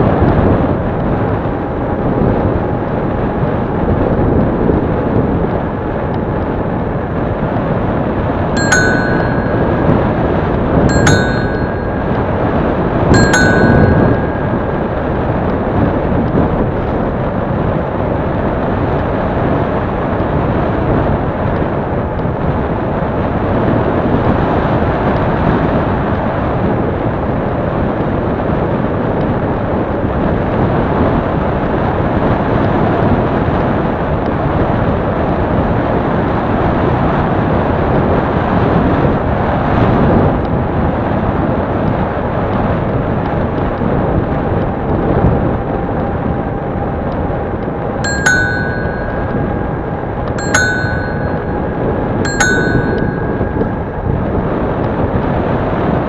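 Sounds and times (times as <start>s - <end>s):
wind rushing on microphone: 0.0s - 56.0s.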